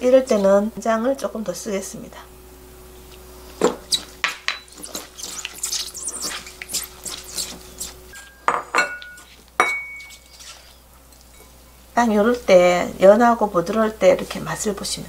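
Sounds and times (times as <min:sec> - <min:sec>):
wet greens squelching and rustling: 0:03.4 - 0:08.3, 0:09.2 - 0:10.9
glass clinking on ceramic plate: 0:08.2 - 0:10.2.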